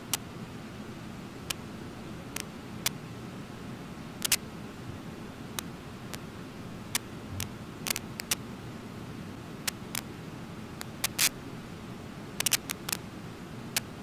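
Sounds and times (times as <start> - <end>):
sharp clicks: 12.4 - 13.0.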